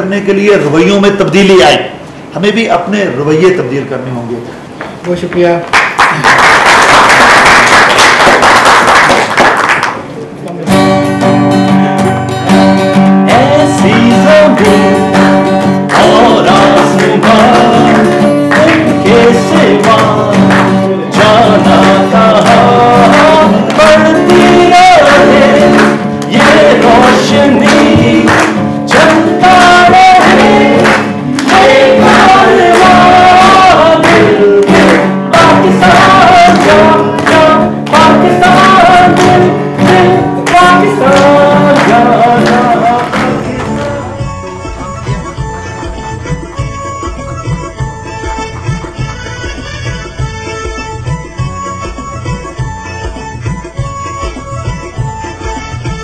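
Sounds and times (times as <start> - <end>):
acoustic guitar strumming: 10.6 - 56.0
man singing: 13.3 - 44.4.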